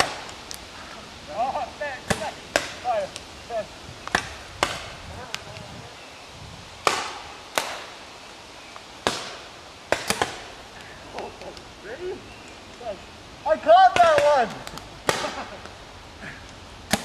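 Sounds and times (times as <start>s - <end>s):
paintball marker shots: 9.0s - 10.4s.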